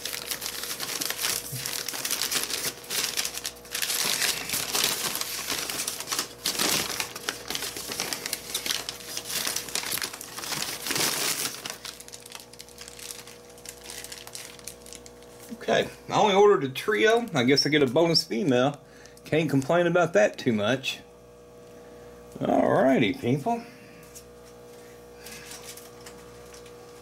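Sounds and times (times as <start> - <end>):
newspaper crinkling and rustling: 0.0 - 15.6.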